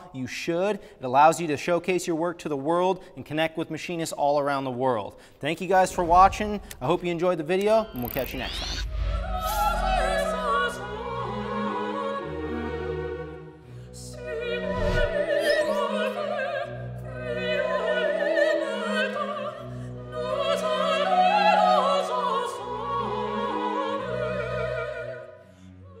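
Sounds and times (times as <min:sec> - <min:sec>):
operatic singing with vibrato: 0:05.6 - 0:26.0.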